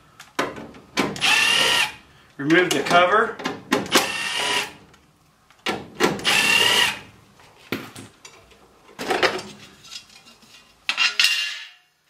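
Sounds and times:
cordless drill running: 0:01.2 - 0:02.0, 0:03.9 - 0:04.8, 0:06.2 - 0:07.0.

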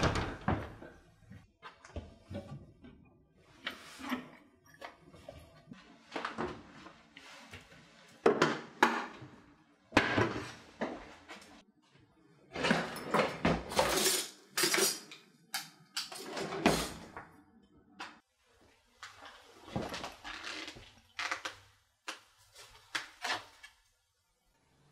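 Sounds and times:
cabinet doors opening and shutting: 0:00.0 - 0:00.9, 0:12.5 - 0:14.8, 0:16.0 - 0:17.3
items clattering inside cabinet: 0:16.0 - 0:17.2.

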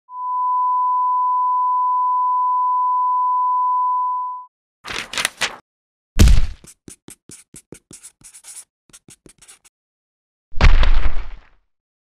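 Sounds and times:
sine test tone: 0:00.1 - 0:04.5.

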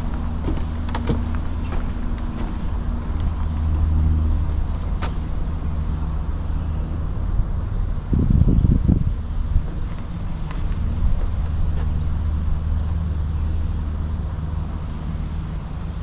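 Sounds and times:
footsteps on wooden planks: 0:00.0 - 0:05.3, 0:09.8 - 0:12.0
low motor hum: 0:00.0 - 0:16.0.

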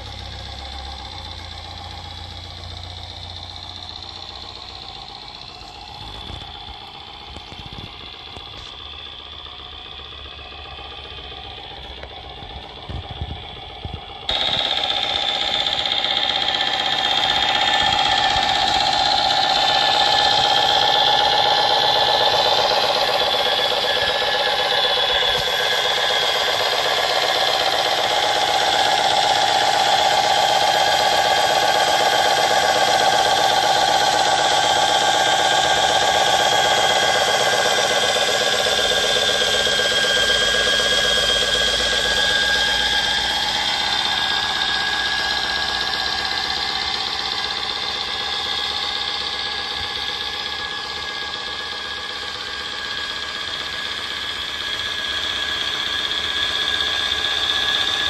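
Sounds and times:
simulated diesel truck engine: 0:00.0 - 0:58.0.

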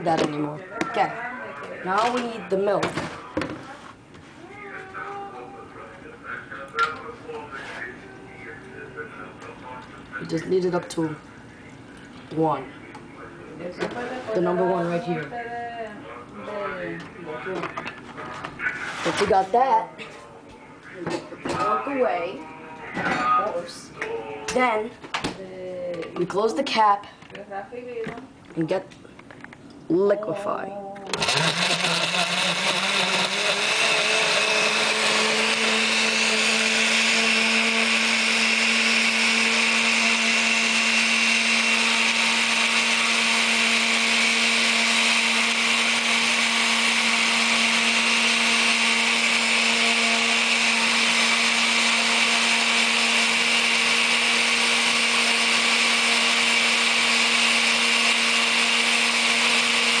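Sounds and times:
blender motor running: 0:31.1 - 1:00.0.

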